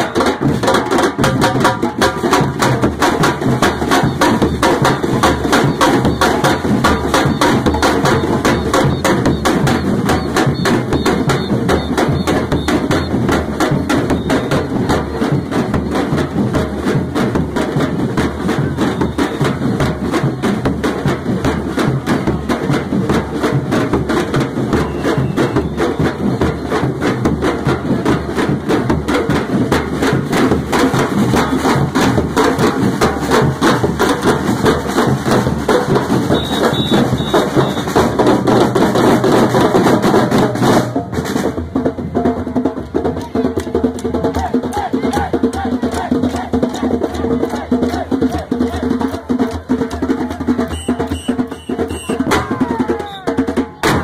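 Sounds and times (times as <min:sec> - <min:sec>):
drum band playing: 0:00.0 - 0:54.0.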